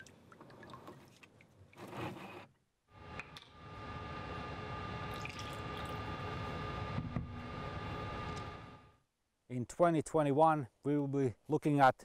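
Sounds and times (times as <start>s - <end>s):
lab equipment humming: 2.9s - 9.0s.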